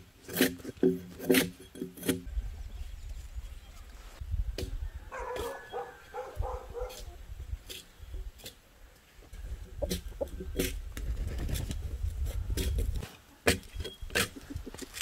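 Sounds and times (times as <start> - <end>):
axe chopping logs: 0.3 - 2.3, 12.6 - 15.0
chickens calling: 2.3 - 10.9.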